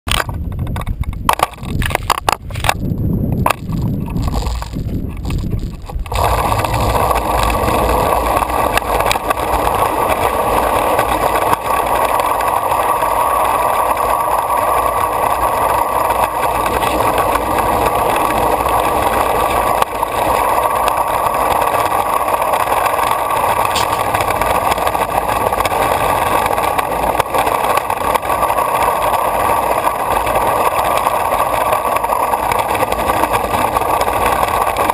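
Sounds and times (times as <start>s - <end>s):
longboard wheels rolling on concrete: 0.0s - 34.9s
knocks and thumps: 0.1s - 7.7s.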